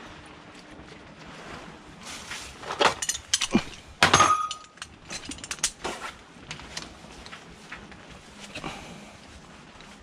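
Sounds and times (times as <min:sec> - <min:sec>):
metal sockets and ratchet clinking: 0:02.8 - 0:05.8.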